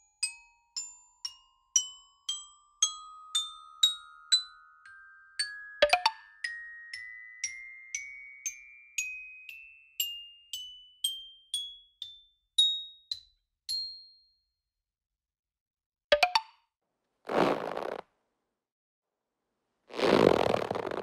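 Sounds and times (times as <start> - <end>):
bell-like mallet notes climbing: 0.8 - 14.2.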